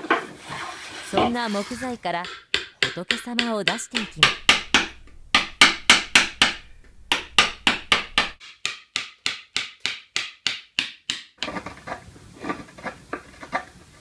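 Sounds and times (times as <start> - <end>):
wooden mallet striking chisel: 2.1 - 11.6
chisel scraping wood: 4.0 - 8.4.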